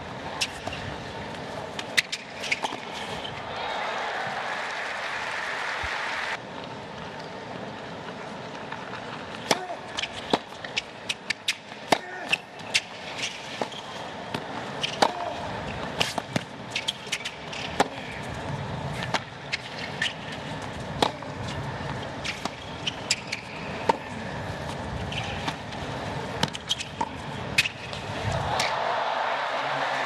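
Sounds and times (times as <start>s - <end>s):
stadium crowd hum: 0.0s - 30.0s
racket hitting tennis ball: 9.4s - 18.1s, 18.9s - 21.6s, 22.2s - 25.7s, 26.4s - 28.8s
tennis ball bouncing: 13.5s - 15.4s, 16.0s - 18.0s, 20.9s - 25.8s, 26.4s - 28.8s.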